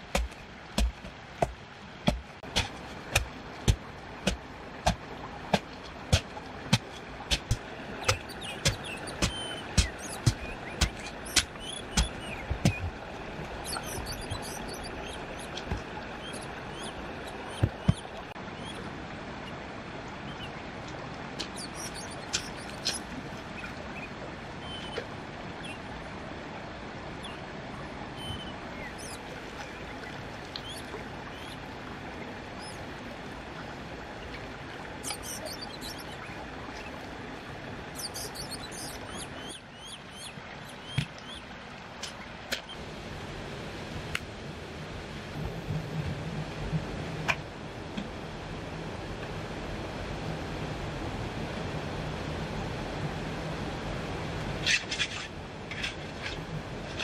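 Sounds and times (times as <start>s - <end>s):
sharp knocks: 0.1s - 12.9s
bird chirps: 8.0s - 12.9s, 13.6s - 15.6s, 16.2s - 18.8s, 21.5s - 23.0s, 28.2s - 29.2s, 30.6s - 31.6s, 35.0s - 36.9s, 38.0s - 41.4s.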